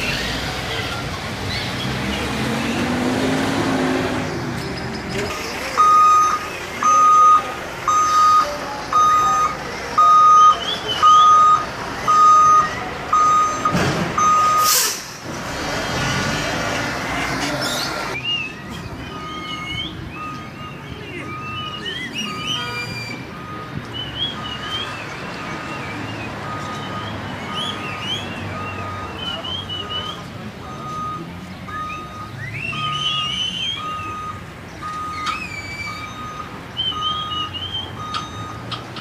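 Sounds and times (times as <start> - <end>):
diesel engine running: 0.0 - 22.3
reversing beeps: 5.8 - 14.7, 18.1 - 38.7
air brake hiss: 14.6 - 15.2.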